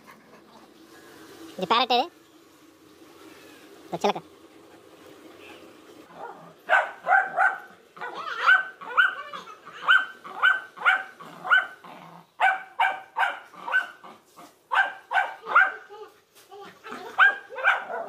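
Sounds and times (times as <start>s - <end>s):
dog barking: 6.1s - 11.8s, 12.4s - 14.0s, 14.7s - 15.9s, 17.0s - 18.0s.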